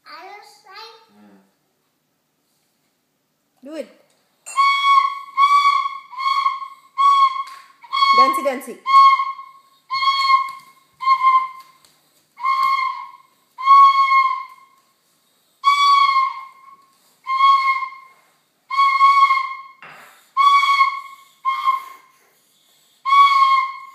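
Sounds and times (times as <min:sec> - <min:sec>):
bamboo flute toots: 0:04.5 - 0:11.8, 0:12.4 - 0:14.8, 0:15.6 - 0:19.8, 0:20.4 - 0:23.9.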